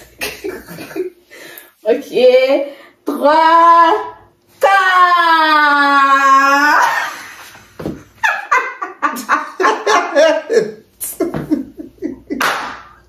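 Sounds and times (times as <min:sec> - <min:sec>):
people laughing: 0:06.8 - 0:12.7.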